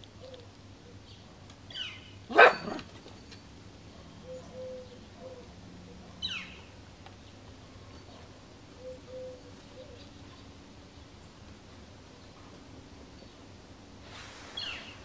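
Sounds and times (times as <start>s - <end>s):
birds calling: 0.0s - 3.3s, 4.0s - 11.5s, 14.6s - 15.0s
dog barking: 2.3s - 2.9s.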